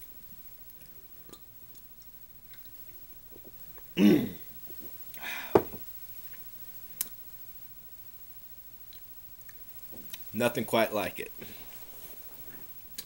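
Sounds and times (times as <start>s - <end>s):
man clearing his throat: 4.0s - 4.5s.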